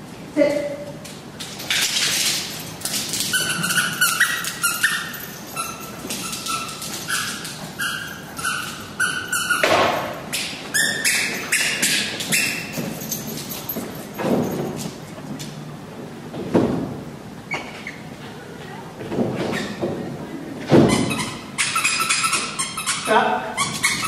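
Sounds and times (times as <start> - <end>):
chew toy squeaks: 3.2 - 10.0, 10.7 - 12.8, 20.8 - 24.0.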